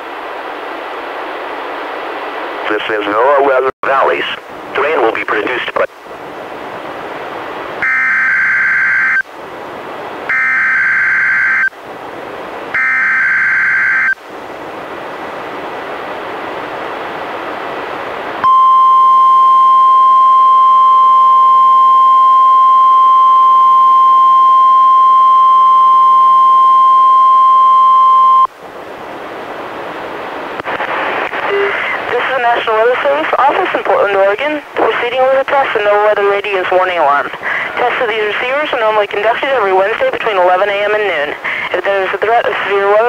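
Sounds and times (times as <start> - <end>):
radio hiss: 2.5 - 6.0, 30.5 - 43.0
steady warning alarm tone: 7.8 - 9.2, 10.3 - 11.7, 12.7 - 14.2.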